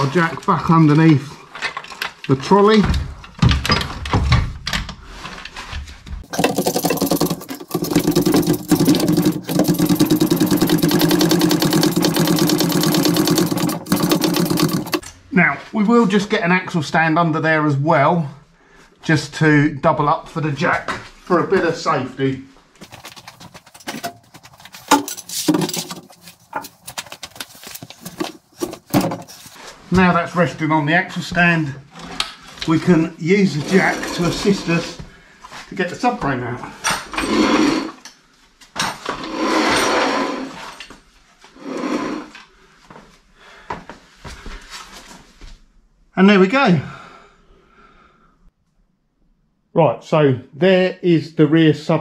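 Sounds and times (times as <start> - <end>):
small motorised machine pulsing: 7.1 - 15.0
metal clanks and clinks: 22.9 - 26.8.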